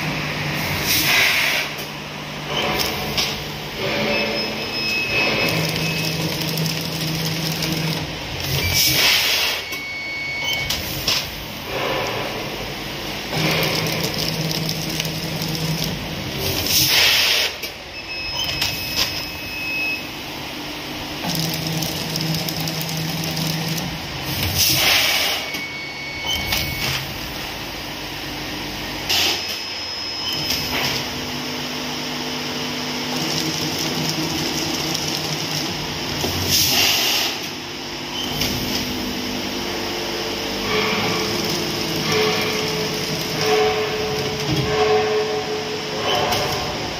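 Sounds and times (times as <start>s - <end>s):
machine low hum: 1.7s - 9.0s, 17.7s - 24.8s, 25.4s - 46.9s.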